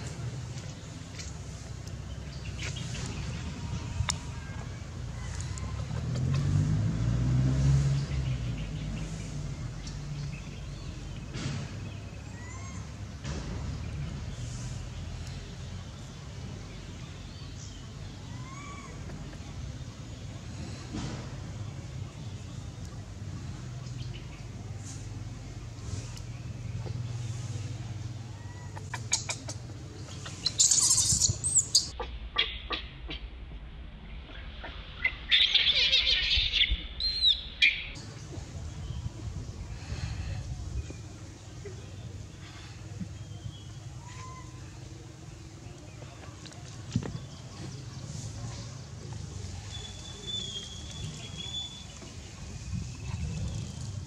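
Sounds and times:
vehicle engine passing: 4.9s - 12.0s
infant monkey squealing: 30.4s - 32.0s.

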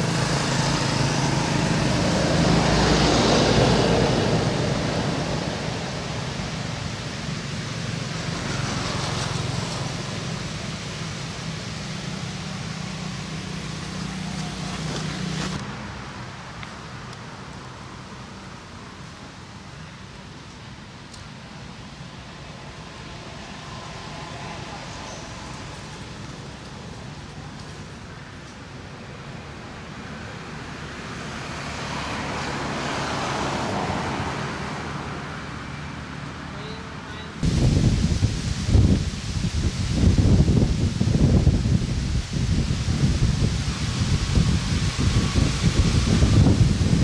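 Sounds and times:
motorbike engine hum: 0.0s - 15.6s
vehicle passing by: 0.0s - 16.2s, 29.6s - 47.0s
steady hiss: 0.0s - 29.9s, 37.4s - 47.0s.

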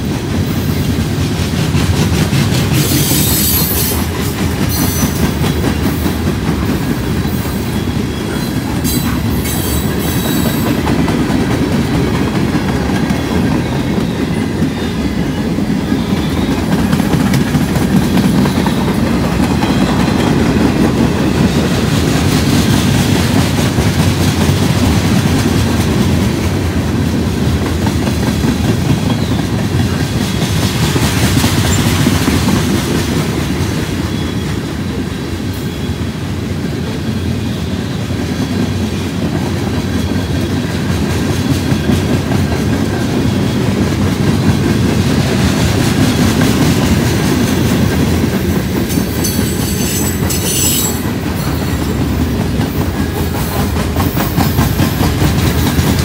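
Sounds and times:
clickety-clack over rail joints: 0.0s - 56.0s
freight train wheels rumbling: 0.0s - 56.0s
high wheel squeal: 2.8s - 5.7s, 7.3s - 10.8s, 48.9s - 52.2s.

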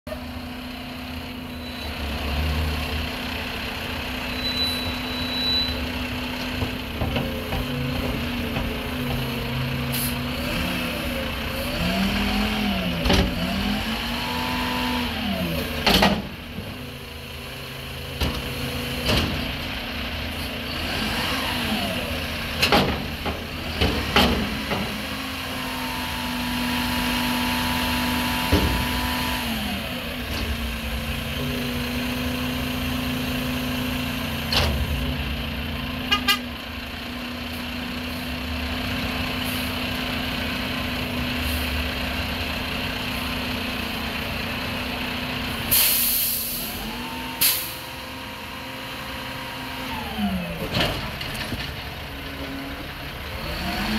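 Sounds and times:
garbage truck engine revving: 0.2s - 5.1s, 5.7s - 53.9s.

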